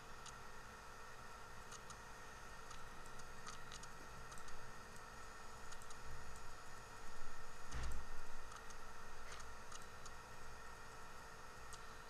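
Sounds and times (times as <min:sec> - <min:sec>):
faint electrical hum: 0:00.0 - 0:12.0
mouse and keyboard clicks: 0:02.7 - 0:04.6, 0:05.7 - 0:06.5, 0:07.8 - 0:10.2.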